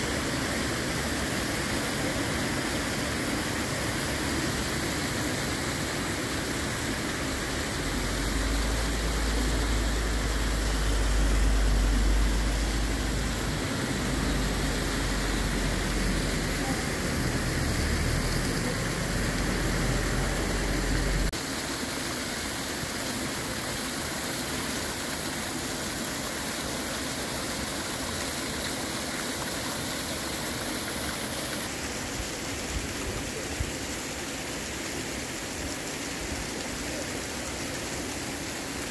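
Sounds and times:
water rushing down rocks: 0:00.0 - 0:38.9
bus engine running low: 0:07.7 - 0:21.3.

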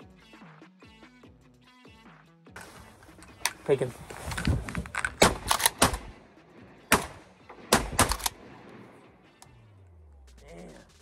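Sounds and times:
shotguns firing: 0:04.9 - 0:09.1.

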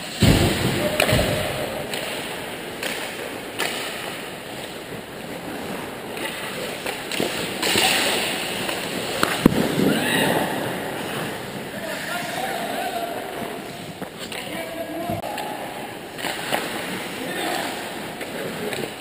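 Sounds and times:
skate blades scraping ice: 0:02.0 - 0:14.6
hockey stick or puck knock: 0:06.8 - 0:09.9
indistinct voices echoing: 0:09.6 - 0:19.0.

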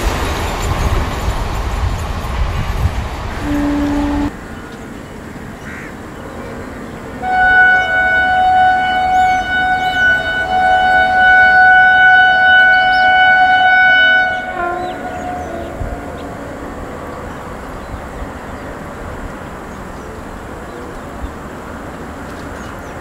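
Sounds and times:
train horn blast: 0:03.4 - 0:04.4, 0:07.2 - 0:16.8.

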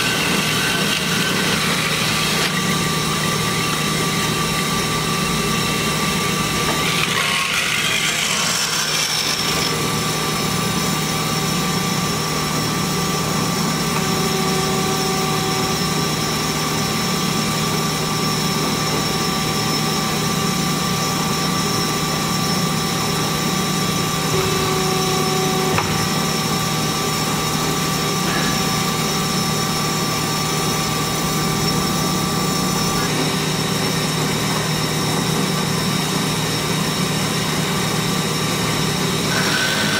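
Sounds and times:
saw blade high whine: 0:00.0 - 0:39.9.

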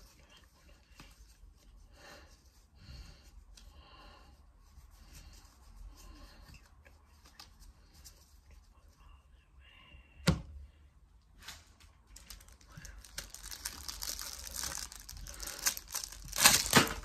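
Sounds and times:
plastic wrapper crinkling and tearing: 0:11.4 - 0:17.0.

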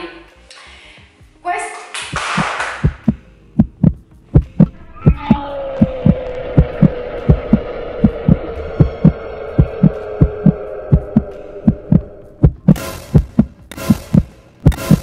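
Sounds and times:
heartbeat thumps: 0:02.1 - 0:15.0
steady droning tone: 0:04.7 - 0:12.7.

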